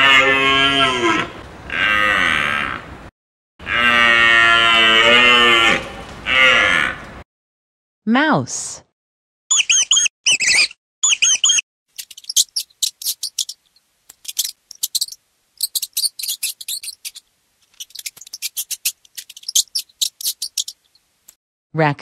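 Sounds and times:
mouse squeaking: 0:09.5 - 0:21.0.

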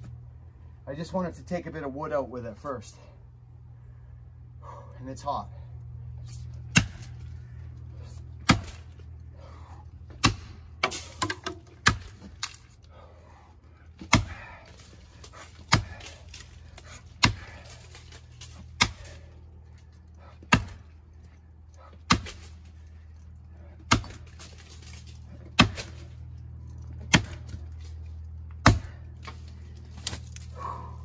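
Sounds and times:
axe chopping into wood: 0:06.7 - 0:07.2, 0:08.4 - 0:09.0, 0:10.1 - 0:12.6, 0:14.0 - 0:19.3, 0:20.4 - 0:20.9, 0:22.0 - 0:22.7, 0:23.8 - 0:26.1, 0:27.0 - 0:27.6, 0:28.6 - 0:29.4.

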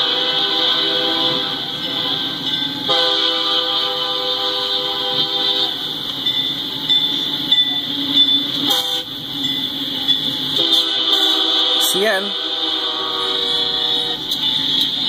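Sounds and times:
locomotive air horn: 0:00.0 - 0:05.9, 0:08.6 - 0:09.2, 0:10.5 - 0:14.4.

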